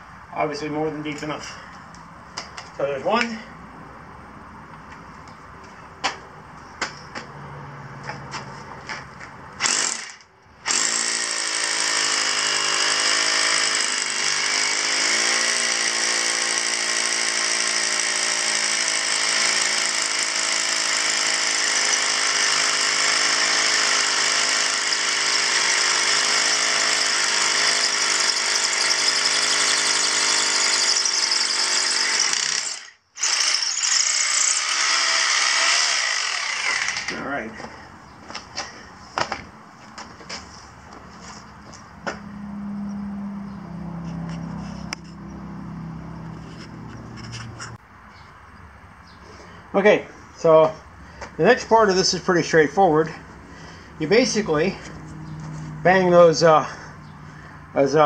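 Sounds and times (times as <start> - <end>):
hammer drill boring into concrete: 9.6 - 37.2.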